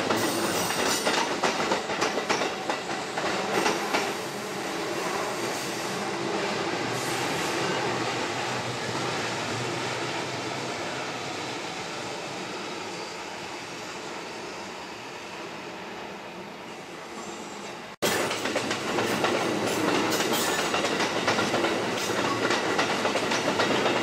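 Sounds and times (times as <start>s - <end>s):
train wheels clacking over joints: 0.0s - 4.2s, 18.0s - 24.0s
train rumble: 18.0s - 24.0s.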